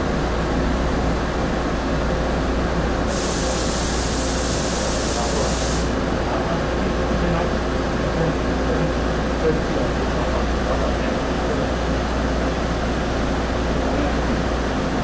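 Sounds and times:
railcar engine drone: 0.0 - 15.0
compressed air hiss: 3.1 - 6.0.

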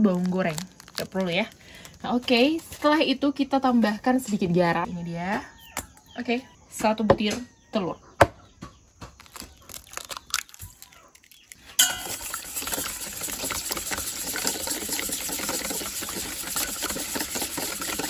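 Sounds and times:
whisk clattering in metal bowl: 11.8 - 18.0.

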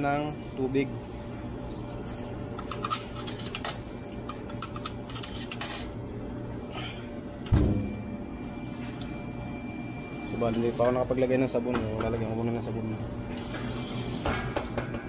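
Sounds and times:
washing machine hum: 0.0 - 15.0.

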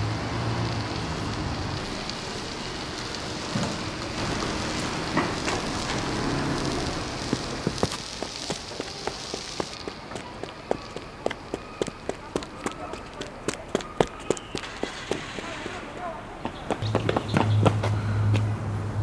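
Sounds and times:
steady noisy hiss: 0.0 - 19.0
footsteps of sneakers on asphalt: 7.1 - 18.5.

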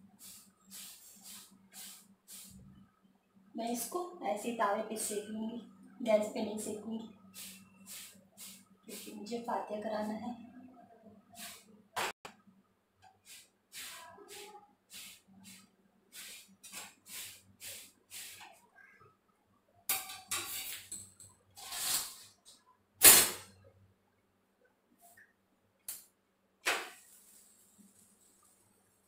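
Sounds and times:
scraping on griddle: 21.6 - 22.2.

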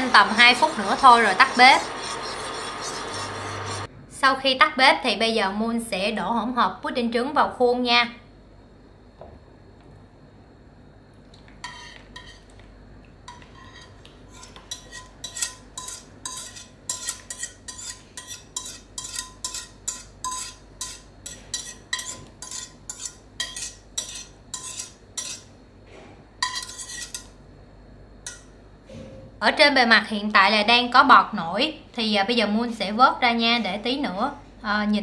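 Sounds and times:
whisk scraping inside a pot: 0.0 - 3.9, 11.6 - 12.6, 13.3 - 25.5, 26.4 - 27.3.

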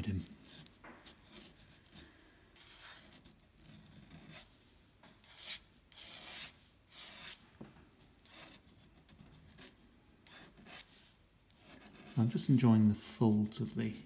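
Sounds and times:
pen nib scratching paper: 0.0 - 2.0, 2.6 - 4.5, 5.2 - 7.4, 8.1 - 12.4.

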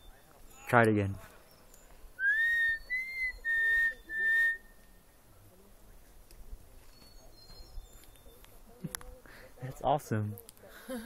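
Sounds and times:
woman whistling a tune: 2.2 - 4.7.

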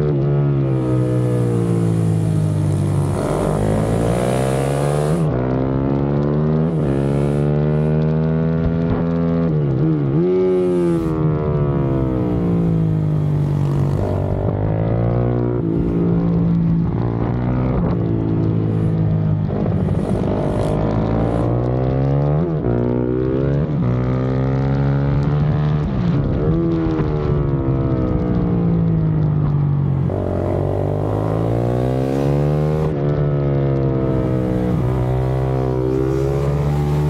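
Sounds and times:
motorcycle engine accelerating: 0.0 - 37.0
wind on microphone: 8.8 - 21.6.

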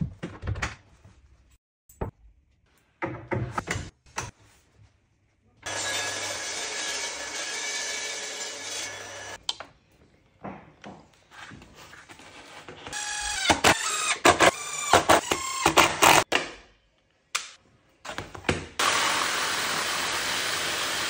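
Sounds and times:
table saw running: 5.7 - 9.4, 18.8 - 21.0.

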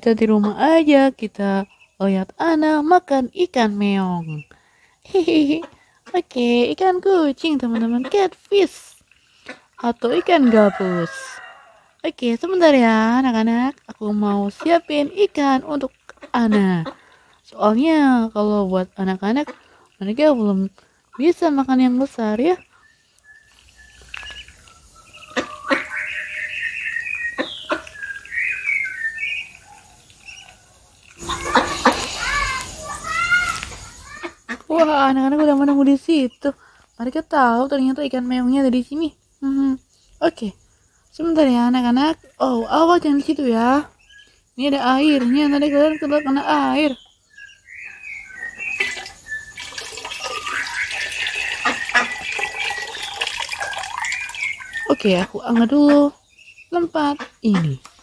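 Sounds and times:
ducklings peeping: 0.2 - 4.5, 5.1 - 11.6, 12.7 - 36.4, 42.8 - 58.0
water sloshing in bucket: 48.6 - 55.2.

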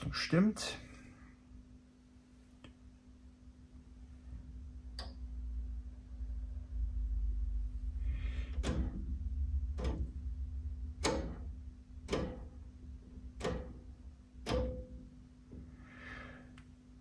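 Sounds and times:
low mains hum: 0.0 - 17.0
rotary switch clicking: 8.5 - 15.1.

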